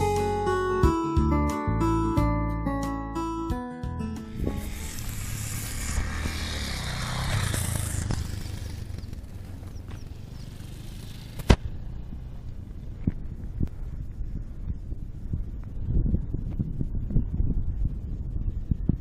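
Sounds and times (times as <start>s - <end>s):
motorcycle engine running: 4.2s - 18.9s
wind rushing over microphone: 4.3s - 19.0s.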